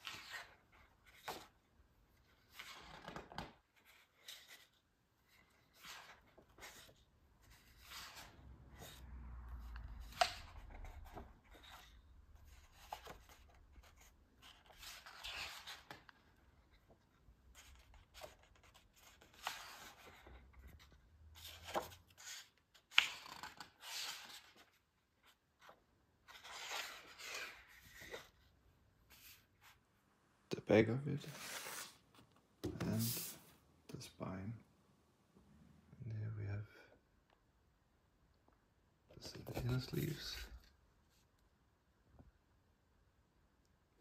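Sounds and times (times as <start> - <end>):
paper pages turning: 12.5 - 28.5, 31.3 - 33.5.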